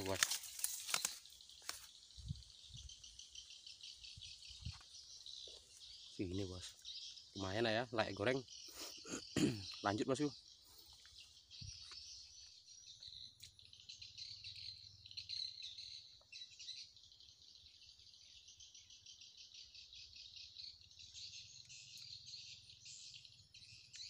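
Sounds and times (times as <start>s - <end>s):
insects trilling: 0.0s - 24.0s.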